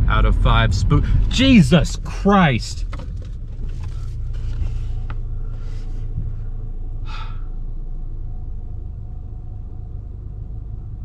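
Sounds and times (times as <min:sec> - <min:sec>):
car engine and tyres rumbling: 0:00.0 - 0:11.0
person's sharp breath: 0:07.1 - 0:07.5.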